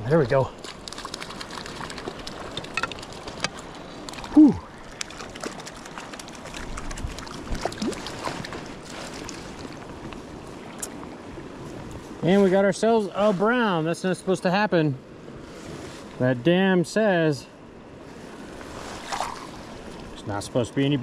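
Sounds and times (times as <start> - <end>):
creek running over rocks: 0.0 - 13.6
short low vocal sound: 4.3 - 4.7.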